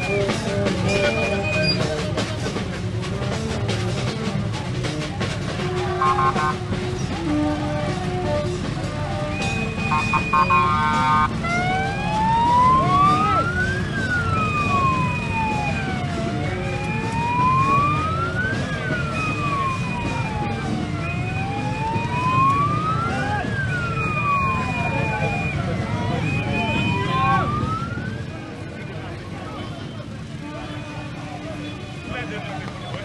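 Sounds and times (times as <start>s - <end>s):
rumble of marching crowd: 0.0s - 33.0s
steady horn tones: 5.5s - 12.1s
vehicle siren wailing: 5.8s - 28.7s.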